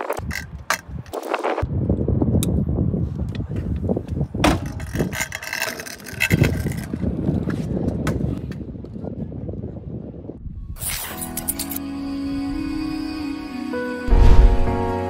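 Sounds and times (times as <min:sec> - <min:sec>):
scooter wheels rolling on asphalt: 0:00.0 - 0:01.6, 0:03.0 - 0:09.4.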